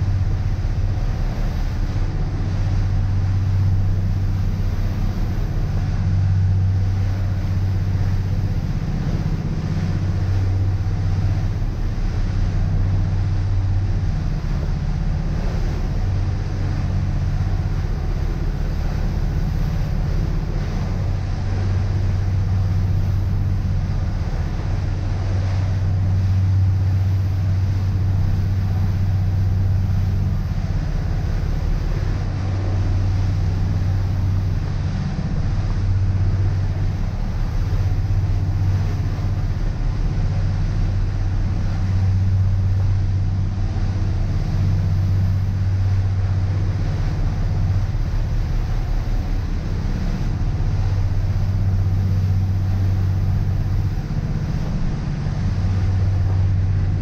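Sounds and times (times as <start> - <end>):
boat engines droning: 0.0 - 57.0
rush of wind and water: 0.0 - 57.0.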